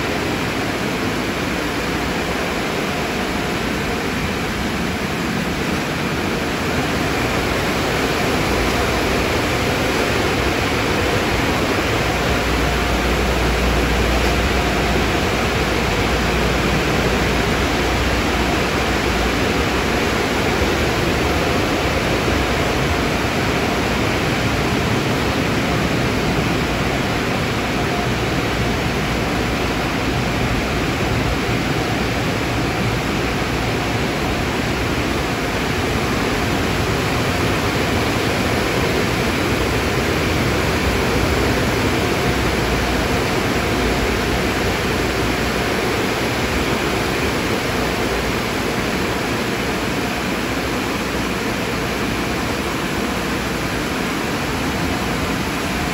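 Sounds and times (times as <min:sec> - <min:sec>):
car wash rushing noise: 0:00.0 - 0:55.9.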